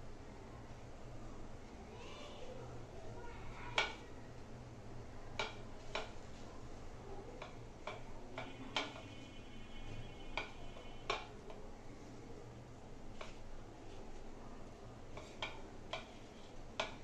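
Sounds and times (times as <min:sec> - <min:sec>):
light clicks and taps on steel plate: 0:05.4 - 0:06.2, 0:07.4 - 0:09.1, 0:10.3 - 0:11.6, 0:15.1 - 0:17.0.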